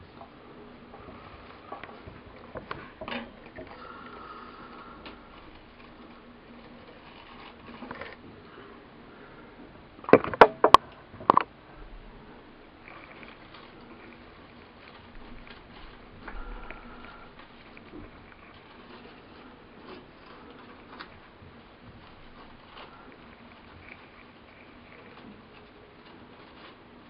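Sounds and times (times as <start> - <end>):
paper towel rustling: 12.3 - 27.0.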